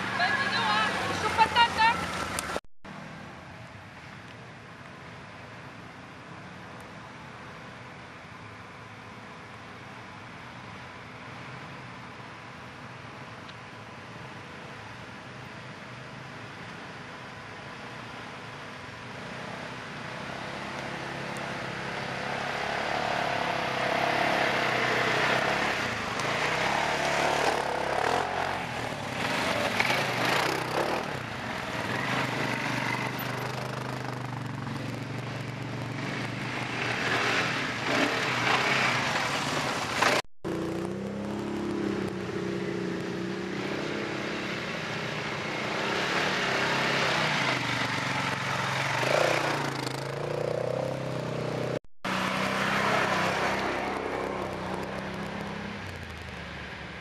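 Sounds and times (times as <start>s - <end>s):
off-road vehicle engines revving: 0.0s - 2.6s, 18.4s - 56.8s.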